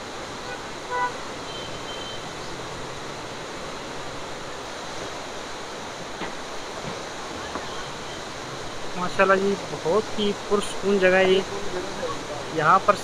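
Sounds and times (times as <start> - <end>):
river rapids rushing over boulders: 0.0 - 13.0
vehicle horn toot: 0.4 - 2.3.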